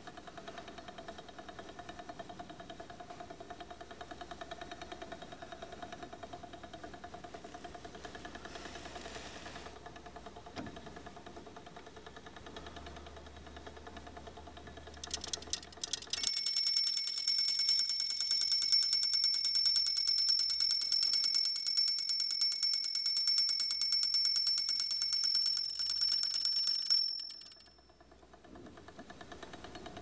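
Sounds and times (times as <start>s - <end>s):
mechanism clicks: 14.2s - 20.0s
clockwork bell ringing rapidly: 15.0s - 28.0s.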